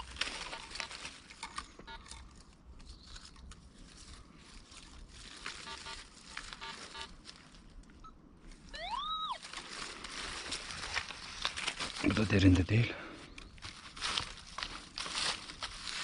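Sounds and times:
leaf litter rustling underfoot: 0:00.0 - 0:16.0
metal detector beeps: 0:01.8 - 0:02.1, 0:05.6 - 0:07.2.

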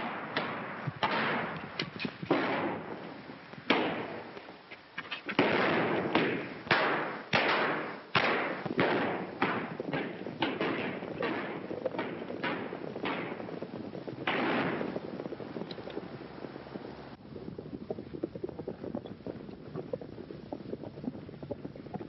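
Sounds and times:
gunshots with echoing tail: 0:00.0 - 0:03.0, 0:03.6 - 0:04.4, 0:05.3 - 0:15.5.

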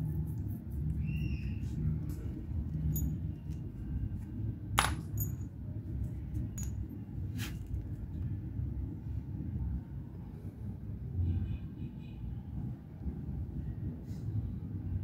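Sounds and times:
metal engine parts clinking: 0:02.8 - 0:03.5, 0:04.8 - 0:05.5, 0:06.5 - 0:06.9.

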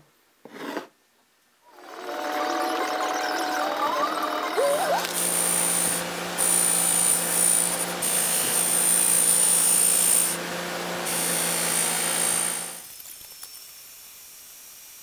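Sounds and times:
bench grinder running: 0:01.8 - 0:12.9.

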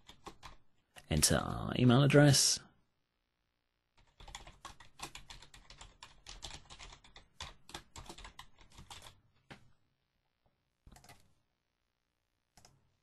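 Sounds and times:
faint typing on keyboard: 0:00.0 - 0:01.1, 0:03.9 - 0:09.8, 0:10.8 - 0:11.4, 0:12.5 - 0:13.0.

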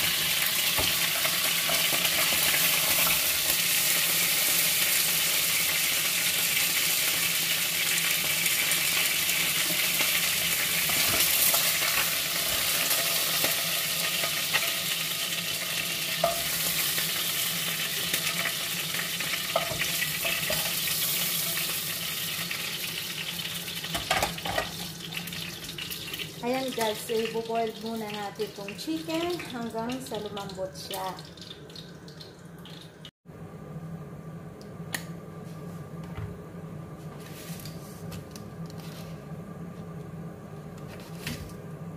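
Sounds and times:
chicken sizzling in oil: 0:00.0 - 0:33.1.

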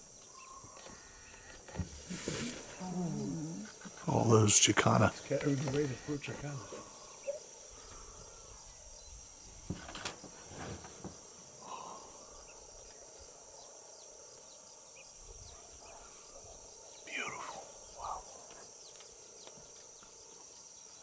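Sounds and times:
insects droning: 0:00.0 - 0:21.0
faint knocks and rustles: 0:09.6 - 0:11.4.

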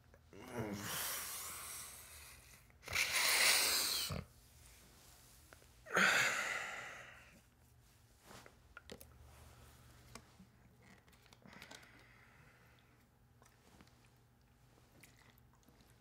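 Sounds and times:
man groaning sighs: 0:00.4 - 0:01.5, 0:05.9 - 0:07.4.

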